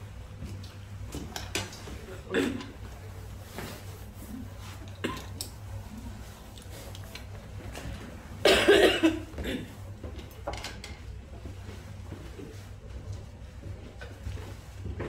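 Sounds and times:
throat clearing: 2.2 - 2.8, 5.0 - 5.3, 8.4 - 9.8
woman coughing: 2.3 - 2.7, 5.0 - 5.3, 8.4 - 9.8.

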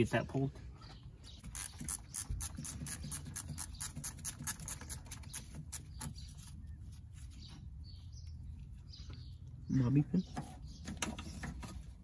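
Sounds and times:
ratchet wrench clicking: 1.5 - 4.9.

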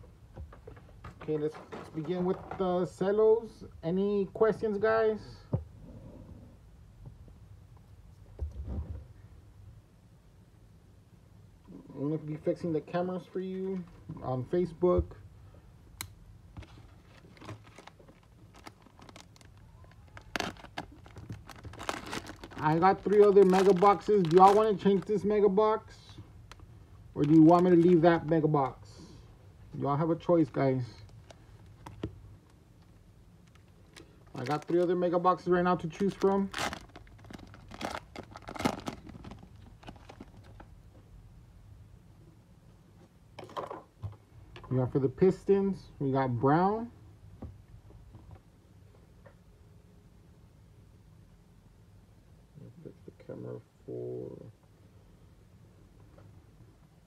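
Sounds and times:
low room hum: 0.0 - 57.0
pack wrappers rustling: 16.6 - 25.2, 26.5 - 28.8, 30.3 - 35.1, 35.8 - 40.7.

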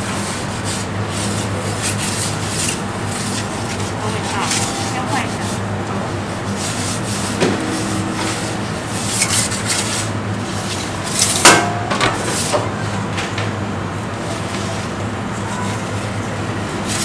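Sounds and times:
steady low hum: 0.8 - 13.1.

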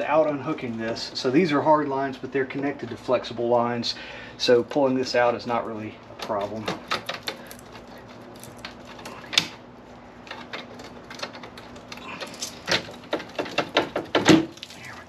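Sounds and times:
plastic clicks knocks and rattles: 6.2 - 9.6, 10.3 - 14.7.

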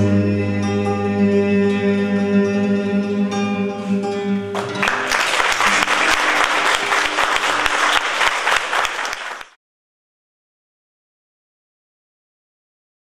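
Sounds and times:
acoustic guitar notes: 0.0 - 8.0
audience applause: 4.6 - 9.6.

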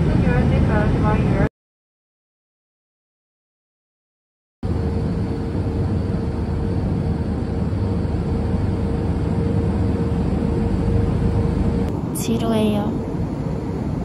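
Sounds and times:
airliner cabin noise: 0.0 - 1.5, 4.7 - 14.0.

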